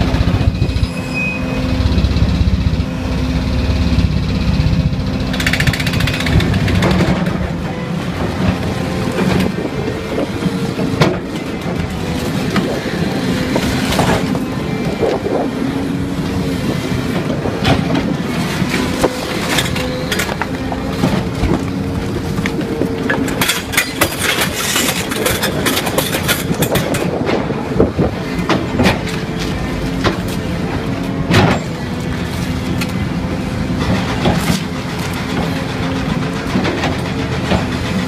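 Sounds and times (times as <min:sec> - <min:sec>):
hydraulic ripper vibrating rattle: 0:04.1 - 0:07.6.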